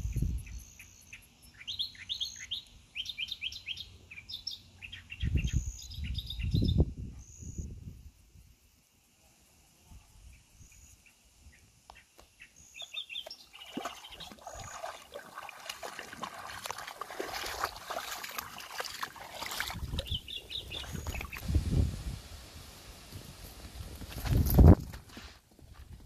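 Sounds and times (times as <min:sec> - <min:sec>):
dog wading through shallow water: 0:13.2 - 0:21.4
high bird chirps: 0:19.9 - 0:21.4.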